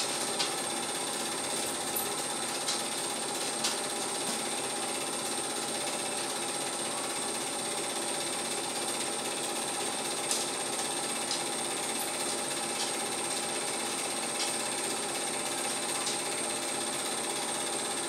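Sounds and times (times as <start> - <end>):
film projector clattering: 0.0 - 18.0.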